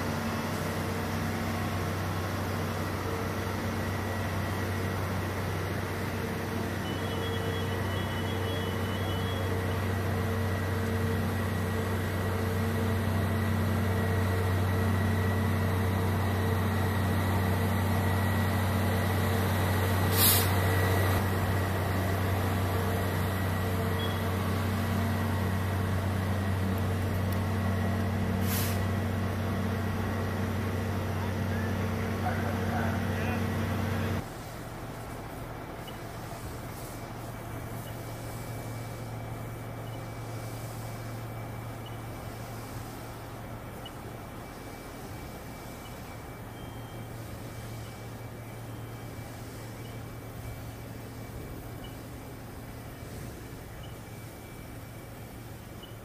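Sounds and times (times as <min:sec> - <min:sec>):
heavy engines rumbling: 0:00.0 - 0:56.0
faint steady tones: 0:28.9 - 0:56.0.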